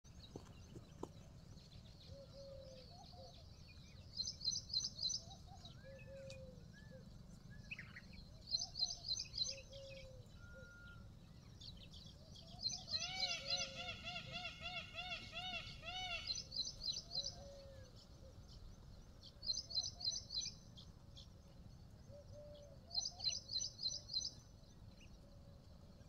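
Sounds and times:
faint low background noise: 0.1 - 26.0
lower whistled bird notes: 7.6 - 11.1.

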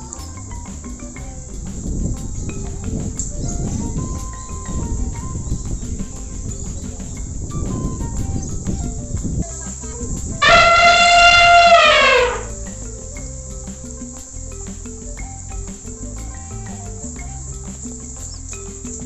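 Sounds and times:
elephant trumpeting: 10.4 - 12.8.

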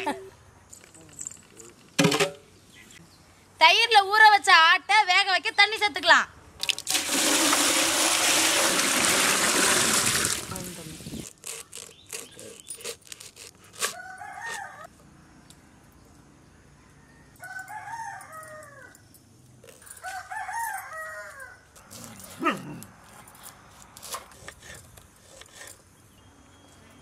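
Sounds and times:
rooster crowing: 13.9 - 14.9, 16.7 - 19.0, 20.0 - 21.7.

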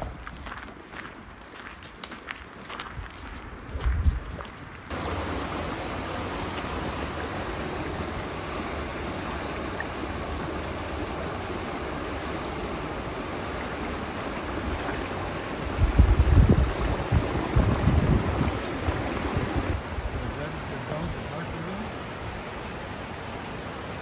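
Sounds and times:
wind buffeting microphone: 2.8 - 4.9, 15.6 - 20.3
brook water rushing: 4.8 - 24.0.

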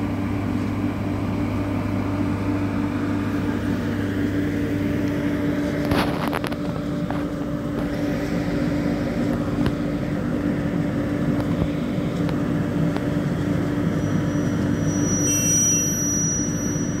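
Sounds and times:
electric locomotive humming: 0.0 - 17.0
thin high whine: 7.8 - 17.0.

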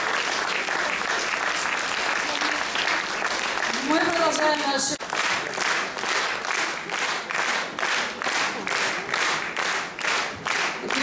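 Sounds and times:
audience clapping in unison: 0.0 - 11.0.

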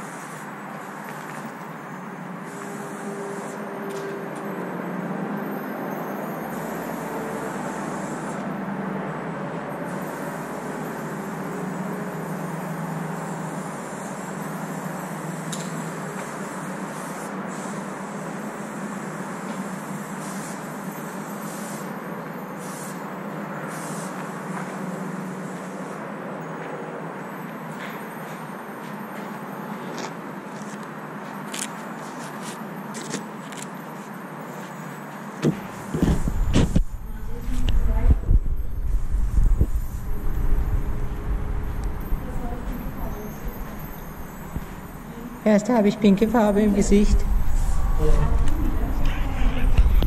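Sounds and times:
spray paint can hissing: 0.0 - 1.5, 9.9 - 21.9, 22.6 - 23.1, 23.7 - 24.8
droning background noise: 0.0 - 50.0
steady low rumble: 36.0 - 50.0.

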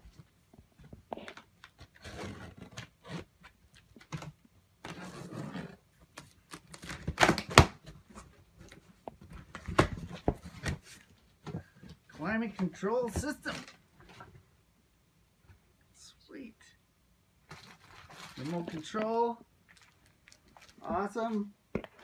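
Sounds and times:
cardboard scraping and rustling: 1.8 - 4.2, 4.9 - 5.8.

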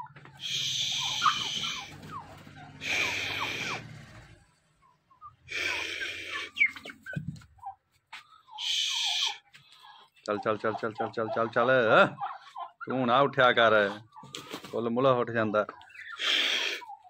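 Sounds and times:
hen hissing: 0.4 - 1.9, 2.8 - 3.9, 5.5 - 6.8, 8.6 - 9.4, 16.2 - 16.9
high chirps: 0.4 - 3.8, 4.8 - 7.7.

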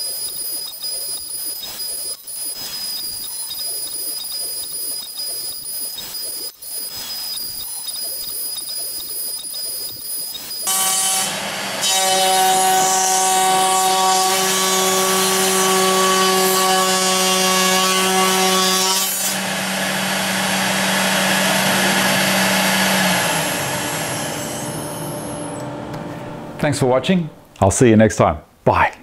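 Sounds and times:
router spindle whine: 9.9 - 26.2
router bit cutting wood: 10.4 - 25.6
hum: 19.4 - 26.7.

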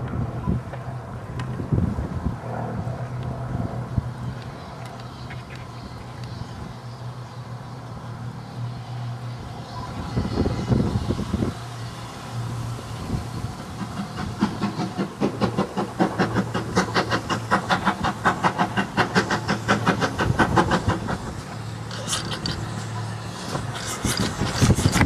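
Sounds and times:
steam locomotive chuffing: 9.3 - 25.0
steam hissing: 9.6 - 25.0.

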